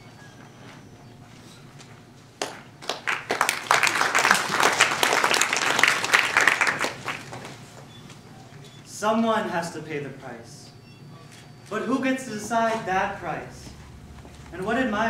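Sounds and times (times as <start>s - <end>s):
audience applauding: 2.4s - 7.8s.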